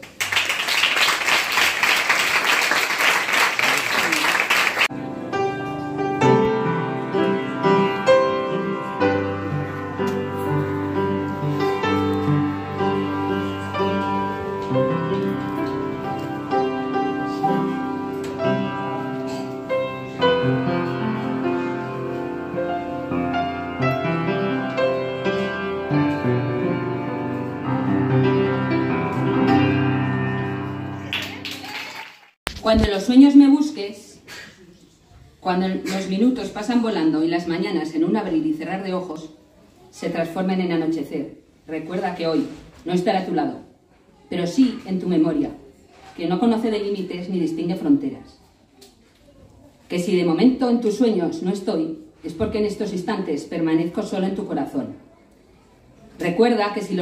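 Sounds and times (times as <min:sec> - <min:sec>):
audience applauding: 0:00.0 - 0:04.9, 0:31.0 - 0:32.4
upright piano melody: 0:04.8 - 0:31.6.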